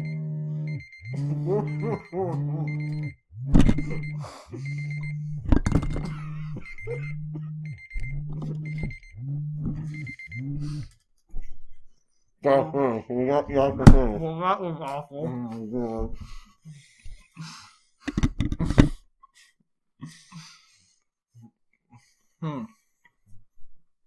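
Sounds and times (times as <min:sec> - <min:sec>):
repeating electronic alarm tone: 0:00.0 - 0:10.9.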